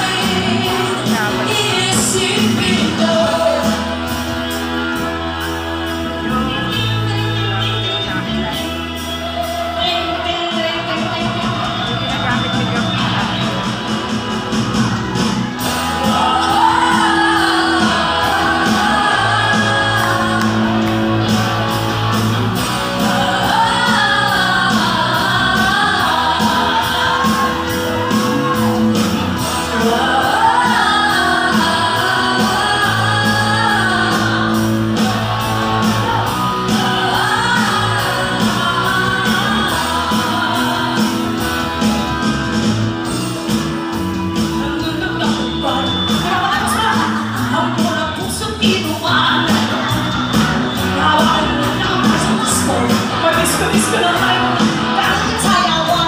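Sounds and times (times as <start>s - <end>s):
women singing into microphones: 0.0s - 4.0s, 15.9s - 21.6s, 22.6s - 28.6s, 29.5s - 41.6s, 50.9s - 56.0s
live pop-rock band: 0.0s - 56.0s
steady drum beat: 0.0s - 56.0s.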